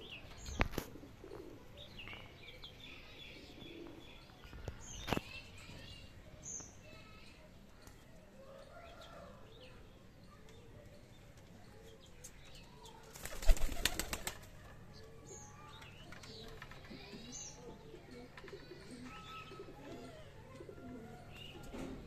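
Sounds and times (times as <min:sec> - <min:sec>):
pigeons cooing: 0:00.0 - 0:02.0, 0:03.2 - 0:04.2, 0:16.3 - 0:22.0
pigeon wings flapping: 0:13.1 - 0:14.5.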